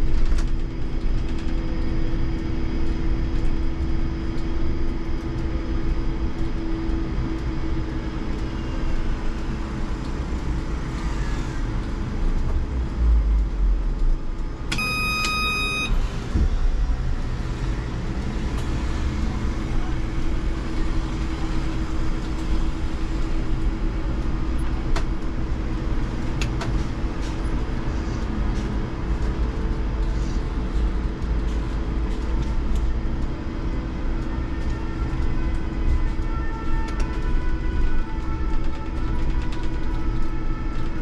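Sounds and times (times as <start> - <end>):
low road rumble: 0.0 - 41.0
high whining tones: 14.7 - 16.1.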